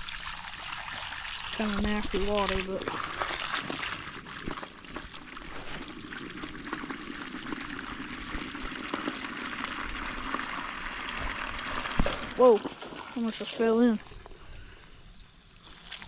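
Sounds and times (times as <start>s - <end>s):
hose water trickling into pan: 0.0s - 16.0s.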